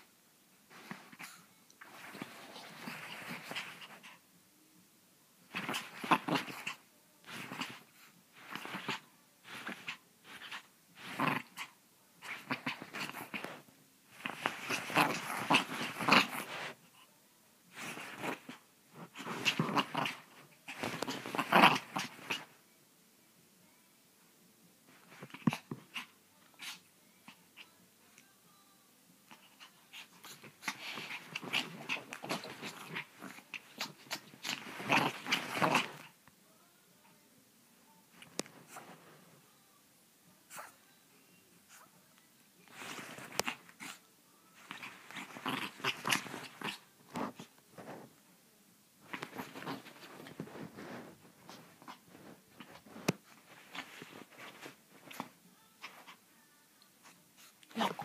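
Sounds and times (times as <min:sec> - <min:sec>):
rustling and scratching of duvet: 0:00.7 - 0:04.0, 0:05.5 - 0:16.9, 0:17.7 - 0:22.6, 0:24.9 - 0:26.7, 0:29.4 - 0:36.2, 0:38.2 - 0:39.4, 0:42.6 - 0:44.0, 0:44.6 - 0:48.2, 0:49.0 - 0:56.2, 0:57.0 - 0:58.0.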